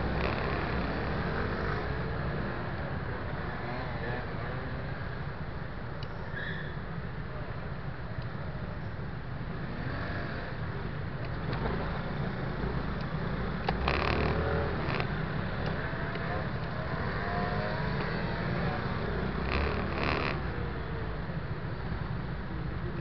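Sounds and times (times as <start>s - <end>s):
scooter engines revving: 0.0s - 5.1s, 11.4s - 21.1s
scooter engine and road rumble: 0.0s - 23.0s.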